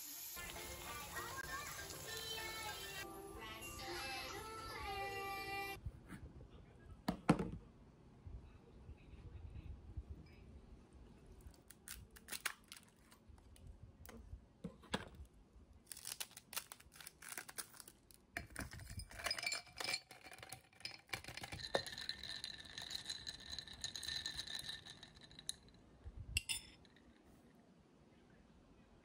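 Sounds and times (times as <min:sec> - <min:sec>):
ice cubes clattering into glass: 0:18.4 - 0:25.7
metal spoon stirring ice in glass: 0:18.4 - 0:25.8.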